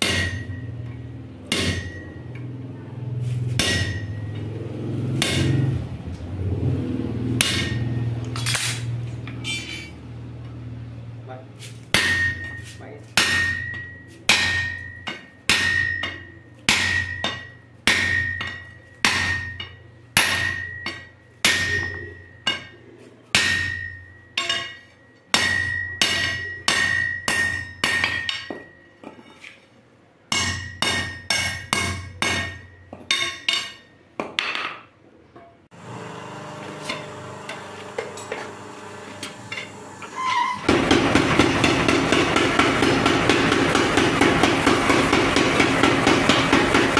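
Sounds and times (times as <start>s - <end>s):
hammer blows on anvil: 0.0s - 0.9s, 1.5s - 2.4s, 3.5s - 4.5s, 5.1s - 5.8s, 7.4s - 8.8s, 11.9s - 22.8s
steady mechanical hum: 0.0s - 33.9s, 35.4s - 46.9s
power hammer pounding: 3.6s - 5.9s, 6.6s - 8.1s, 40.6s - 46.9s.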